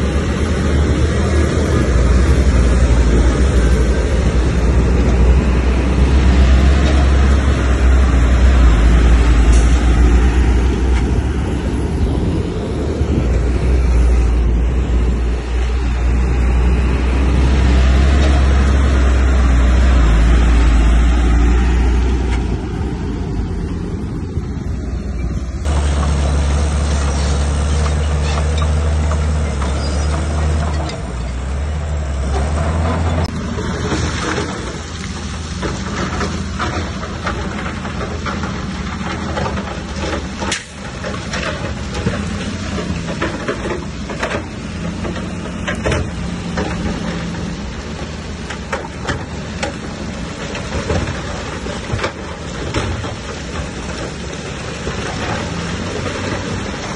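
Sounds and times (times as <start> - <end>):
bulldozer diesel engine droning: 0.0 - 56.9
metal clanks and knocks: 32.3 - 56.9.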